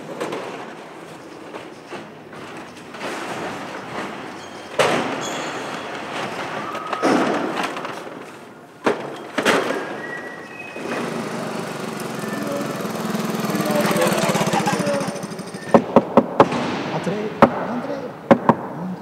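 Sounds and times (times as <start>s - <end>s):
bottle crates clattering: 0.0s - 14.9s
moped engine running: 10.8s - 16.1s.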